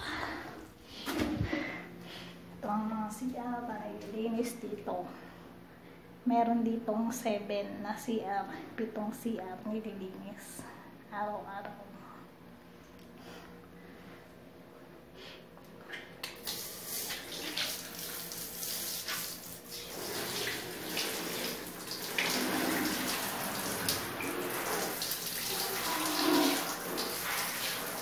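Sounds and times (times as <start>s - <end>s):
water splashing into bathtub: 16.2s - 28.0s.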